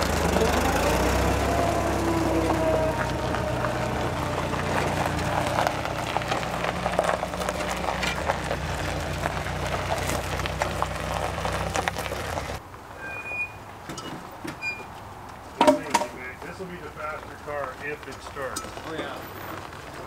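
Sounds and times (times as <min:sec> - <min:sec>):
vehicle engine running: 0:00.0 - 0:12.6
gravel crackling under tyres: 0:00.0 - 0:20.0.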